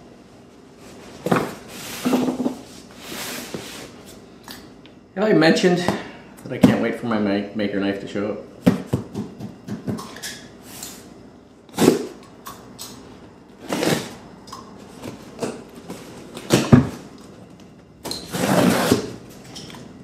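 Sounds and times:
packing tape tearing off cardboard: 11.7s - 12.2s, 13.6s - 14.2s, 18.1s - 19.2s.

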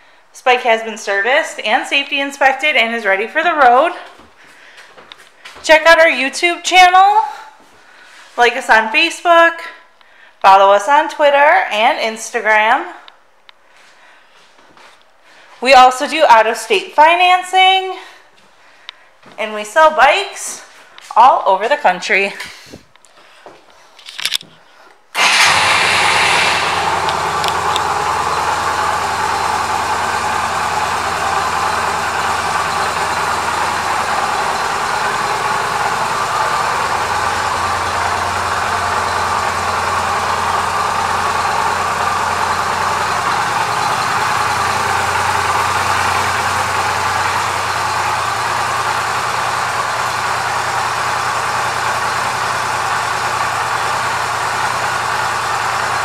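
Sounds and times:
motorcycle engine starting and idling: 25.2s - 56.0s.

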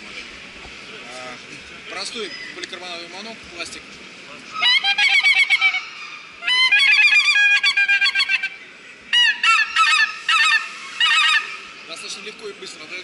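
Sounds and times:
goose call honks: 4.6s - 11.7s.

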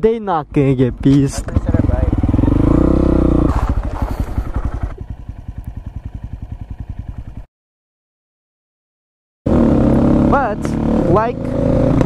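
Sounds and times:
motorcycle engine idling: 1.0s - 7.5s.

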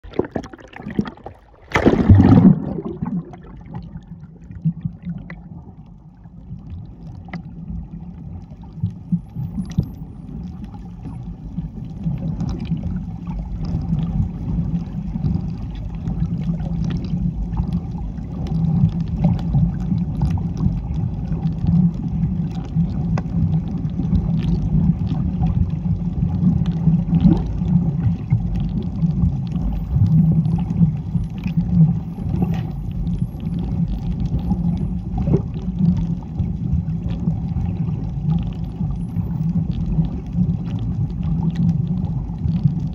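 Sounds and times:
splash into water: 0.0s - 4.0s
low underwater rumble: 0.0s - 42.9s
faint ticks: 4.7s - 42.9s.

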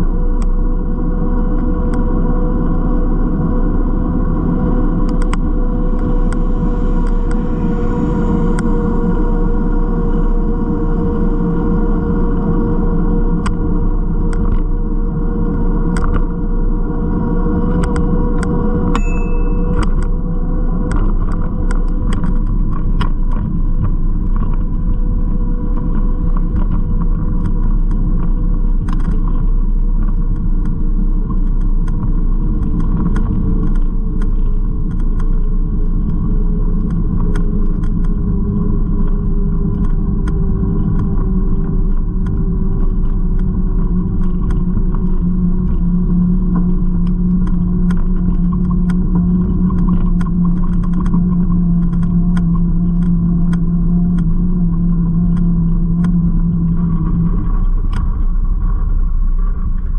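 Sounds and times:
car traffic rumble: 0.0s - 59.9s
bicycle clicks and rattles: 17.7s - 59.9s.

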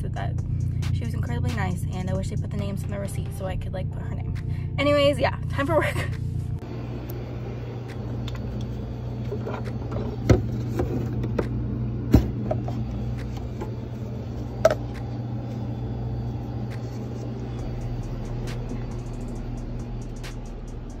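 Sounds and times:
low machine hum: 0.0s - 21.0s.

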